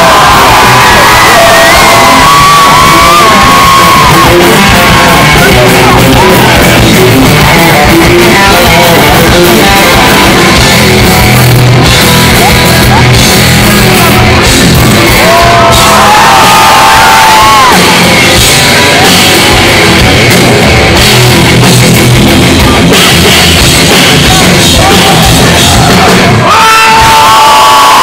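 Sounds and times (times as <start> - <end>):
live rock band playing: 0.0 - 28.0.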